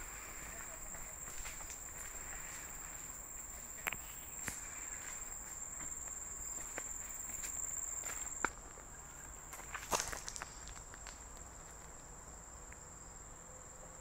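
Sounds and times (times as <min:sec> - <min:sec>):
footsteps on dry leaves: 0:00.0 - 0:08.6, 0:09.4 - 0:11.8
leaves crackling underfoot: 0:00.0 - 0:12.2
high-pitched insect trill: 0:00.0 - 0:14.0.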